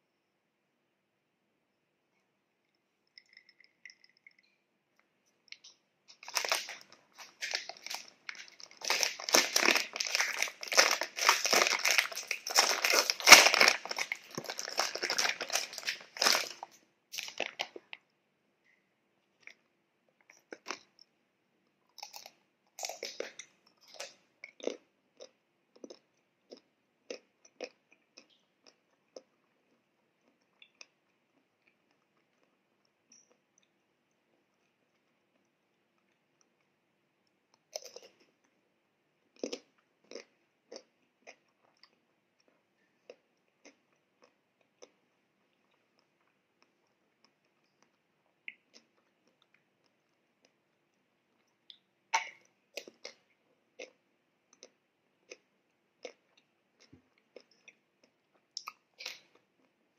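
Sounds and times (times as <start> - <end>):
crunching and chewing: 5.5 - 18.0, 21.9 - 36.7, 37.5 - 38.6, 39.2 - 50.6, 51.4 - 59.8
plastic wrapper crinkling: 6.1 - 18.0.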